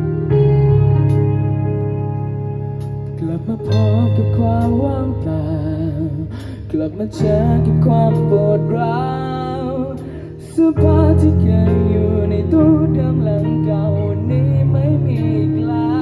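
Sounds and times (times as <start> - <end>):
live band playing pop-rock: 0.0 - 16.0.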